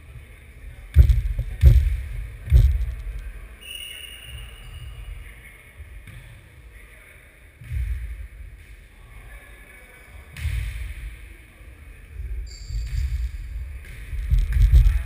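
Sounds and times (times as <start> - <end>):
brief high squeak: 3.6 - 5.0.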